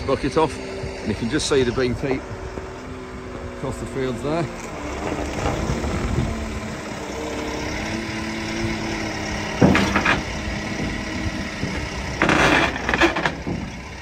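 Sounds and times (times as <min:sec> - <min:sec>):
telehandler engine running: 0:00.0 - 0:14.0
metal bucket clanking: 0:09.1 - 0:14.0.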